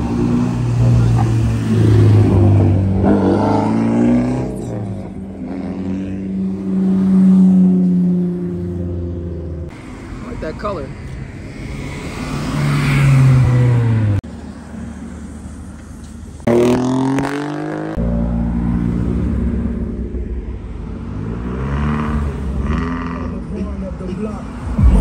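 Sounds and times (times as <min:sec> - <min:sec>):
car engines revving past: 0:00.0 - 0:09.7, 0:11.4 - 0:14.2, 0:16.4 - 0:25.0.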